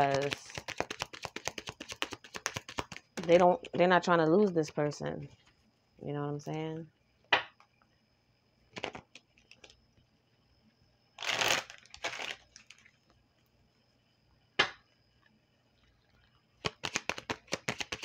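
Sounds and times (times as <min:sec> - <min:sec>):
cards rustling: 0:00.0 - 0:03.4, 0:08.8 - 0:09.7, 0:11.2 - 0:12.9, 0:16.6 - 0:18.0
sharp tap of cards: 0:16.6 - 0:18.0.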